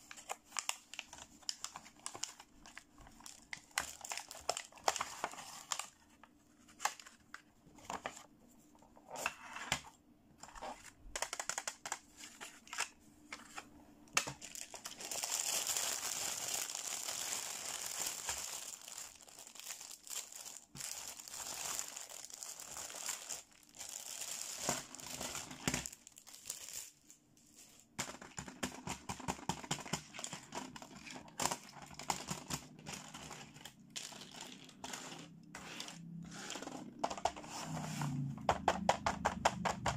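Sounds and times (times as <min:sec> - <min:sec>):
plastic packaging crinkling: 0:00.0 - 0:07.3, 0:14.2 - 0:27.2, 0:30.0 - 0:37.3
plastic pieces clicking and clattering: 0:11.1 - 0:12.0.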